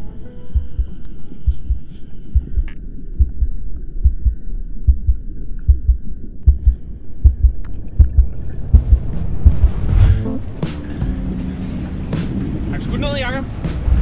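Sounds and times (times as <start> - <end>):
heartbeat thumps: 0.5 - 11.5.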